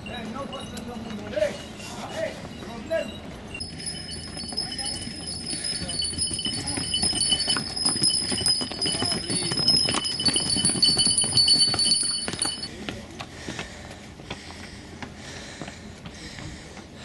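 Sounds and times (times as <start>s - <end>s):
bells jingling: 0.0s - 12.7s
hooves clopping on stone steps: 0.0s - 17.0s.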